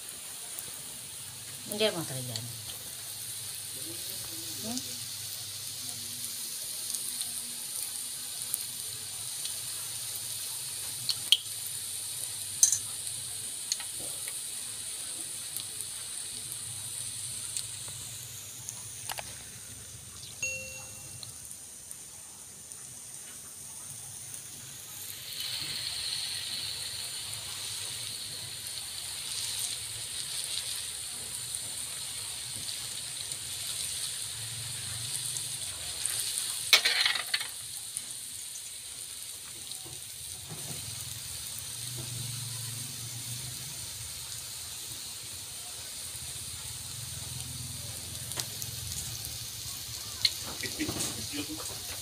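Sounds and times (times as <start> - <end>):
batter frying in oil: 0.0 - 52.0.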